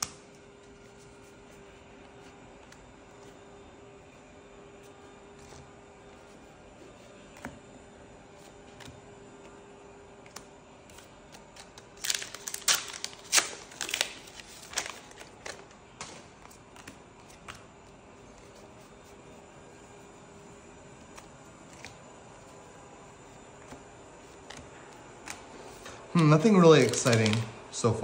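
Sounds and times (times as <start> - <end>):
cards being handled: 0.0 - 7.7, 8.3 - 9.6, 10.2 - 28.0
foil wrapper tearing and crinkling: 11.4 - 16.7, 26.2 - 27.6.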